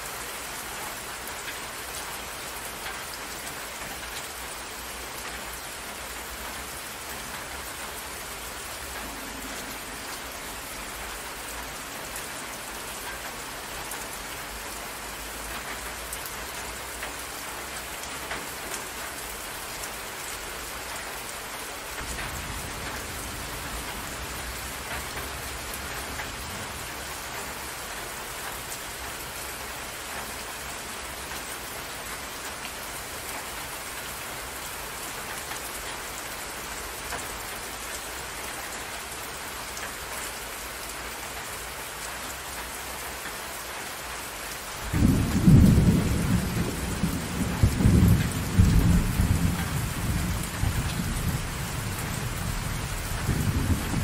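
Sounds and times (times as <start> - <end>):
rain falling steadily: 0.0 - 54.0
low rumble of thunder: 44.8 - 54.0.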